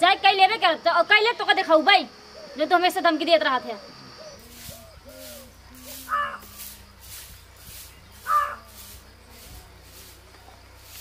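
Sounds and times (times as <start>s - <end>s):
crow cawing: 4.5s - 6.7s, 8.2s - 8.7s.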